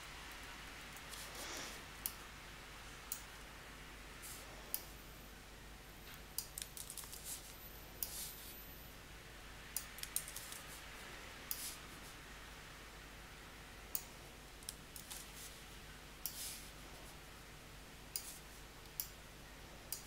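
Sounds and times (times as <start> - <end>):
computer mouse and keyboard clicks: 6.4 - 8.2, 9.8 - 10.7.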